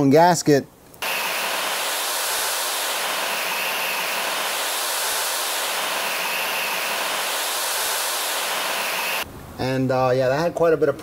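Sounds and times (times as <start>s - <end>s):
turbojet engine running: 1.0s - 9.2s.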